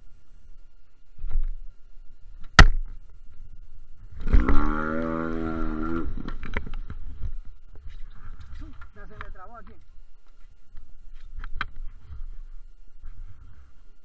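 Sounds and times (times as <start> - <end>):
outboard motor: 4.1 - 7.2.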